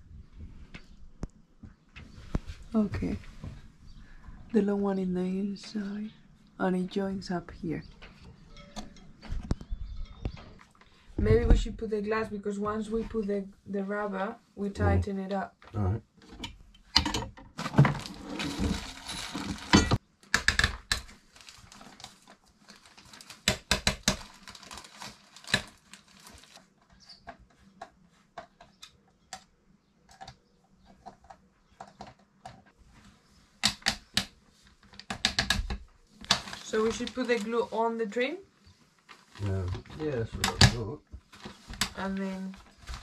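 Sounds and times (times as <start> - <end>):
plastic sheeting rustling: 17.6 - 19.9, 21.2 - 23.5, 24.1 - 26.8, 36.2 - 38.0, 38.8 - 40.3, 41.3 - 43.0.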